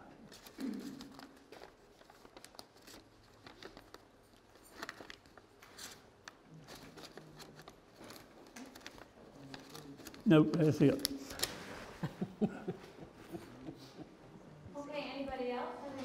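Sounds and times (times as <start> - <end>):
paper rustling and crinkling: 0.2 - 12.2.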